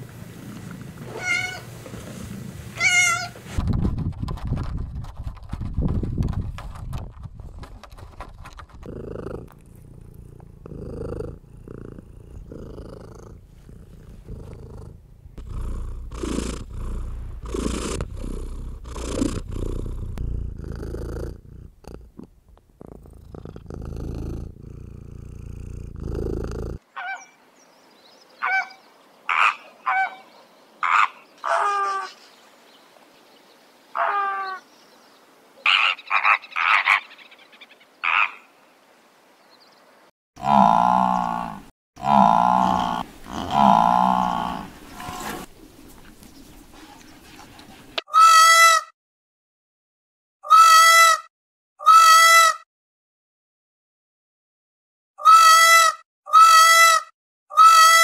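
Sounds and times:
cat crying: 1.1 - 1.7, 2.8 - 3.4
cat purring: 8.8 - 26.8.

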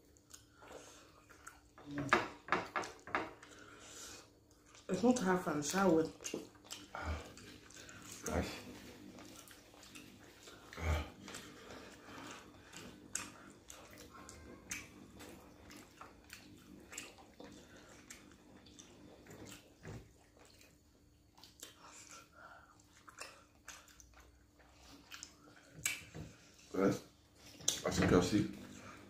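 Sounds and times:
wet chewing: 0.0 - 2.0, 2.8 - 27.9
faint steady hum: 0.0 - 29.0
lip smacks: 21.4 - 26.2.

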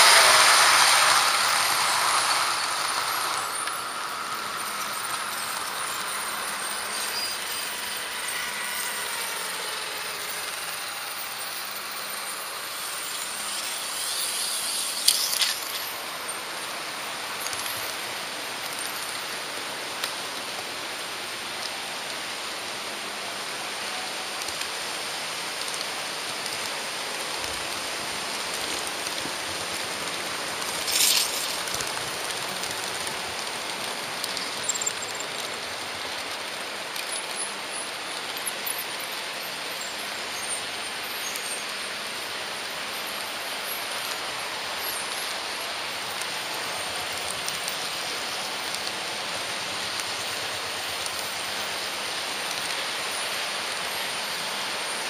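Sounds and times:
sharp squeal: 0.0 - 16.0
model train rolling on track: 0.0 - 55.0.

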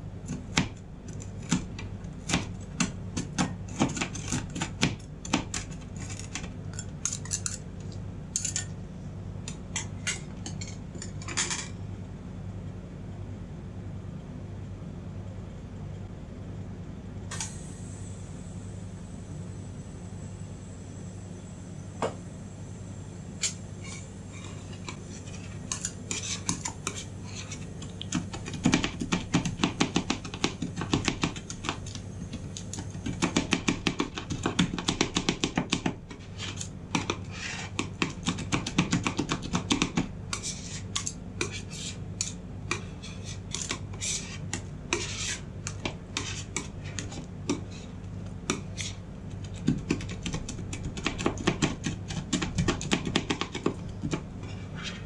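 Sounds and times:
metal spatulas clattering on plate: 9.8 - 11.8
spatula scraping: 23.4 - 32.4, 36.1 - 38.5, 40.3 - 50.5, 53.5 - 55.0.

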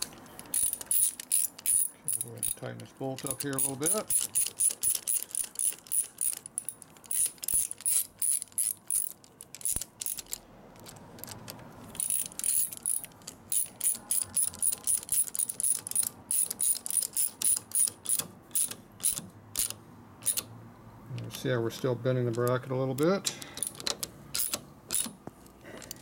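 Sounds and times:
socket ratchet clicking: 0.0 - 20.5, 23.3 - 25.2.

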